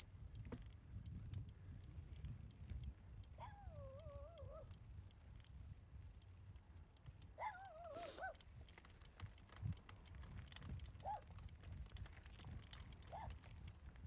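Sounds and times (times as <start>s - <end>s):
wind rumble on microphone: 0.0s - 14.0s
bike rattling over rough trail: 8.3s - 14.0s.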